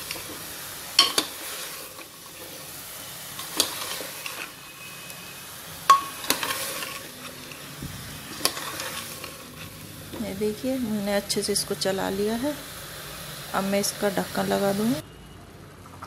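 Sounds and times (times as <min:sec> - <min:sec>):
pumpkin sizzling in a pot: 0:00.0 - 0:15.0
ladle clinking on metal pot: 0:01.0 - 0:01.4, 0:05.9 - 0:07.1
ladle scraping through chunks: 0:01.0 - 0:05.2, 0:06.0 - 0:10.2.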